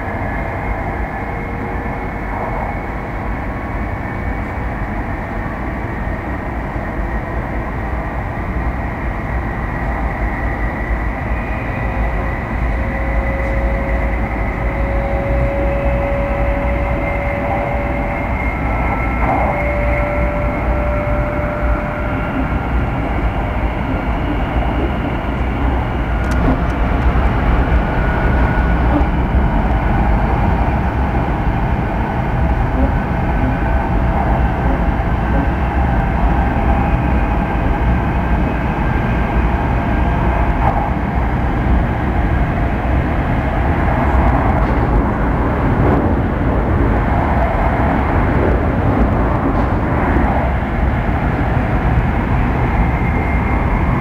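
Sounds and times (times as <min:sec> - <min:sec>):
train wheels rumbling on rails: 0:00.0 - 0:54.0
faint whining tones: 0:06.0 - 0:41.2.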